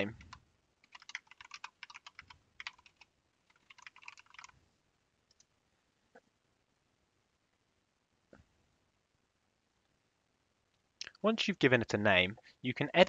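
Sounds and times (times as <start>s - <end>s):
typing on a keyboard: 0.0s - 4.6s.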